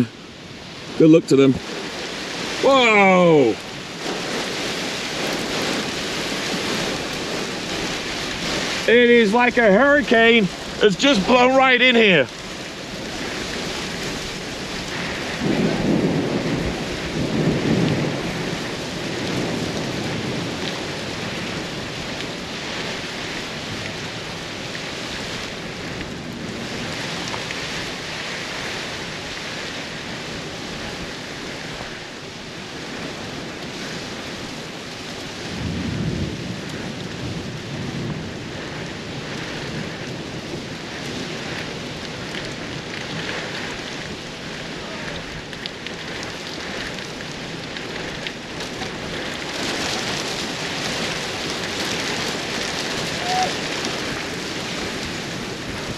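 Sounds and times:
heavy rain falling: 0:00.0 - 0:55.9
thunder rumbling: 0:00.0 - 0:55.9.

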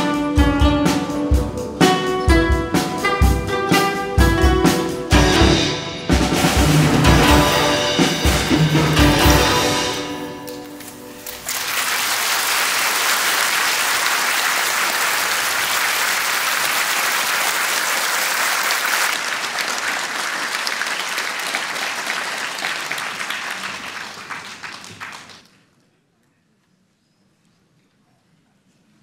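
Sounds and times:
audience applauding: 0:06.6 - 0:25.6.

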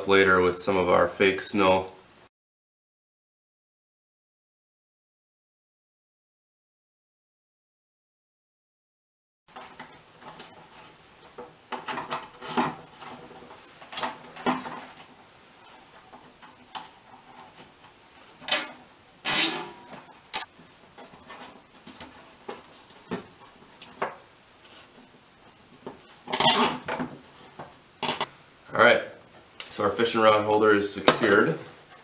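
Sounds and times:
zip ties rasping tight: 0:19.3 - 0:19.6.

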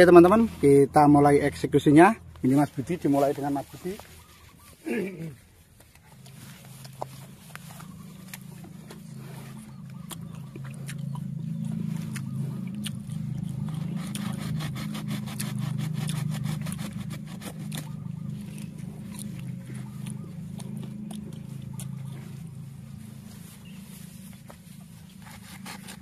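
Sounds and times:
low engine-like hum: 0:00.0 - 0:26.0
hand tool scraping soil: 0:13.6 - 0:18.0, 0:23.1 - 0:26.0.

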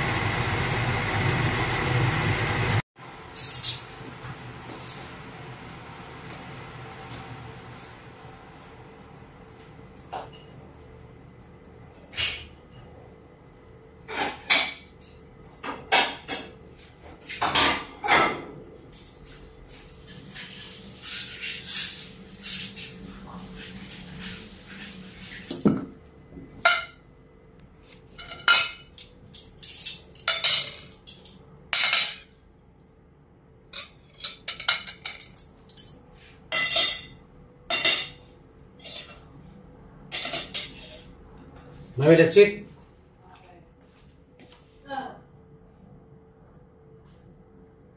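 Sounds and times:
plates and cutlery clinking: 0:33.7 - 0:38.2.

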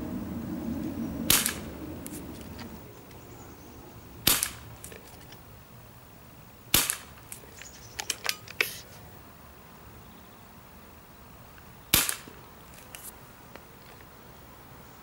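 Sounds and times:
air pistol shots: 0:01.3 - 0:02.2, 0:04.2 - 0:04.9, 0:06.7 - 0:07.4, 0:11.9 - 0:12.4.

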